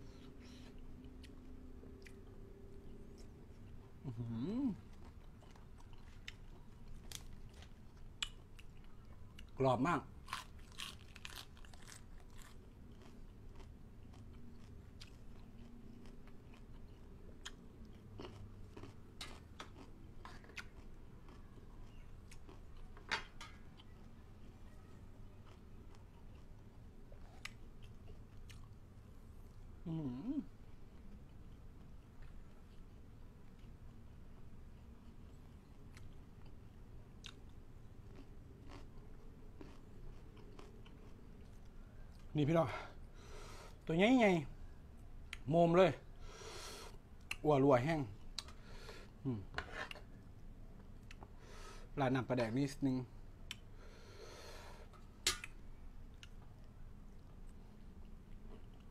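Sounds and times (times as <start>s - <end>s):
close-up crunchy chewing: 0.2s - 9.6s, 10.2s - 24.8s, 30.8s - 42.3s.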